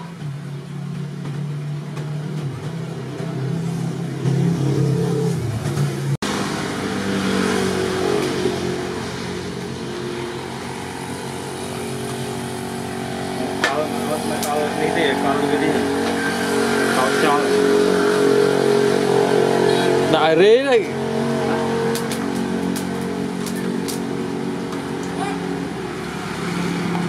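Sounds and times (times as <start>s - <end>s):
fan blower rushing air: 0.0s - 27.0s
mechanical hum shifting pitch: 0.0s - 27.0s.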